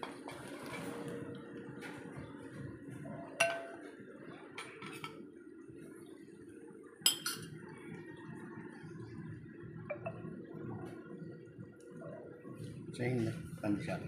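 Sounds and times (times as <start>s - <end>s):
metal utensils and dishes clinking: 3.4s - 3.8s, 4.6s - 5.2s, 7.1s - 7.5s.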